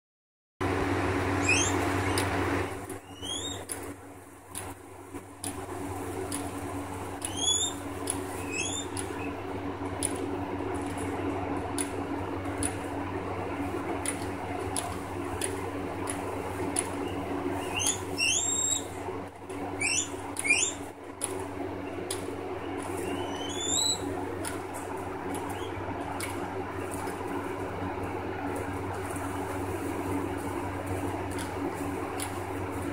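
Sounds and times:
high rising squeaks: 1.4s - 2.3s
crunching stems clicks: 1.4s - 9.3s, 10.0s - 12.8s, 13.9s - 32.9s
guinea pigs chewing hay: 1.4s - 32.9s.

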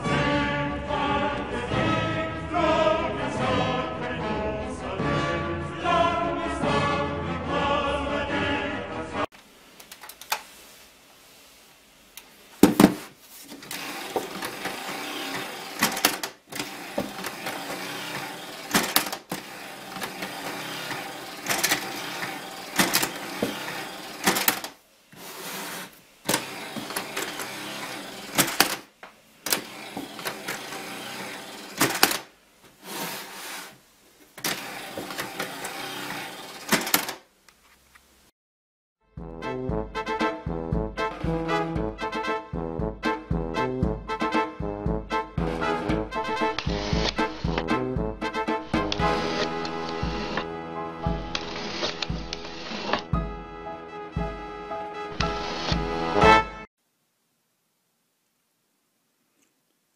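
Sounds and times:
gears rattling: 13.6s - 24.8s, 29.5s - 32.3s, 34.4s - 37.2s.

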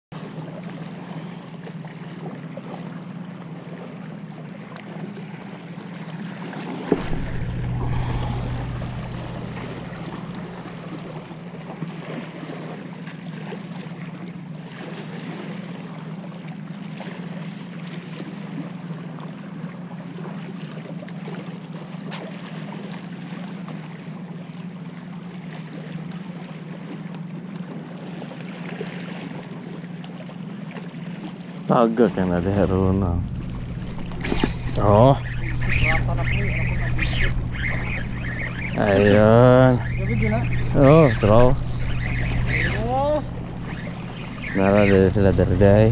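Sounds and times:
wind buffeting microphone: 6.9s - 11.8s, 32.6s - 45.9s.

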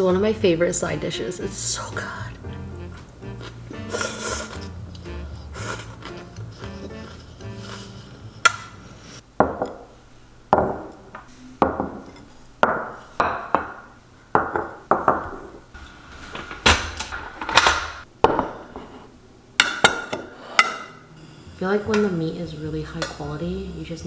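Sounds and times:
ceramic bowls knocking on wood: 9.4s - 9.8s, 10.6s - 10.9s, 11.6s - 12.0s, 12.6s - 15.5s.

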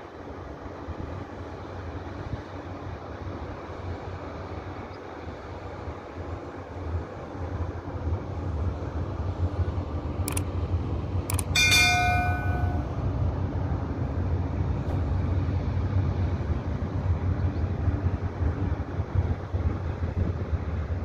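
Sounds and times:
bell chime: 11.3s - 13.0s.

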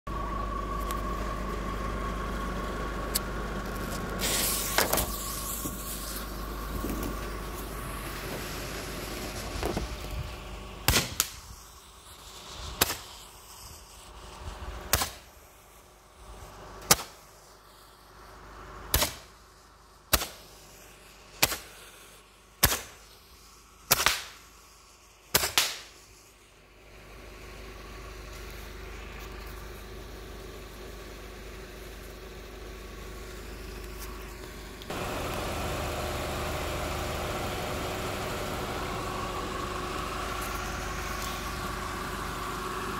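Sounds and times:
car engine idling: 0.1s - 25.3s, 26.0s - 42.9s
roman candle firework pops: 10.8s - 11.6s, 12.2s - 13.3s, 14.8s - 15.4s, 16.8s - 17.3s, 18.9s - 19.3s, 20.1s - 20.6s, 21.3s - 21.9s, 22.6s - 23.2s, 23.9s - 24.5s, 25.3s - 26.1s.

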